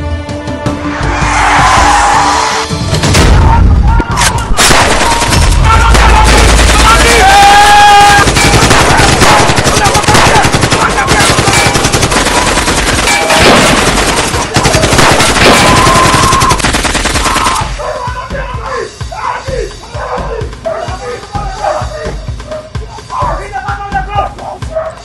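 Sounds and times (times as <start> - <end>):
background music: 0.0 - 25.0
rapid automatic gunfire: 4.6 - 17.7.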